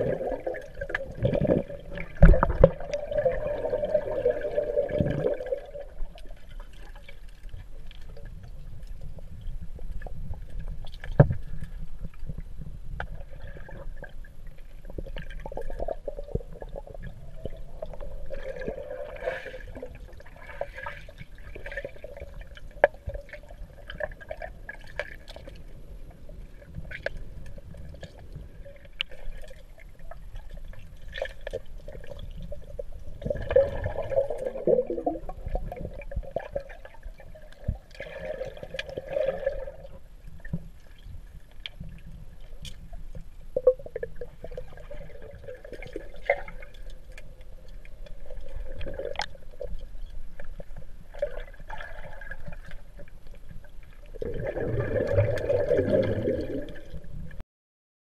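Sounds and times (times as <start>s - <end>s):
air bubbles gurgling: 0.0s - 41.1s, 41.7s - 57.4s
underwater low rumble: 0.0s - 57.4s.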